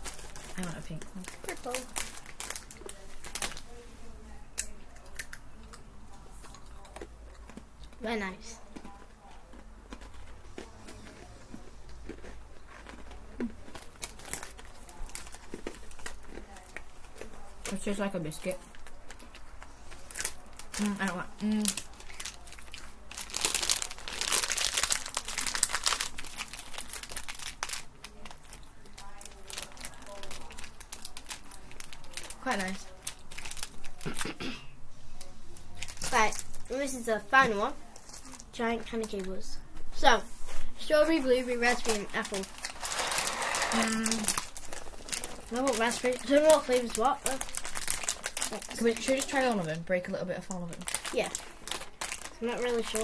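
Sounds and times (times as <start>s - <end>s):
plastic packet crinkling: 0.0s - 3.7s, 12.6s - 16.6s, 18.7s - 34.0s, 35.7s - 36.8s, 41.5s - 49.8s, 50.4s - 53.0s
biscuits crunching: 4.5s - 34.4s, 41.5s - 49.6s, 50.8s - 53.0s.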